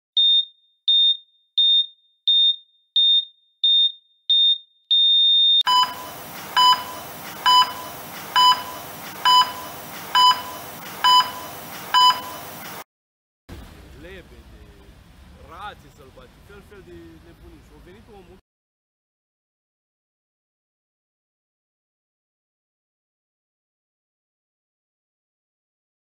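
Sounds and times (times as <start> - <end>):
heart monitor beeps: 0.2 - 12.8
long steady flatline tone: 5.7 - 12.8
steady hiss: 5.8 - 12.8.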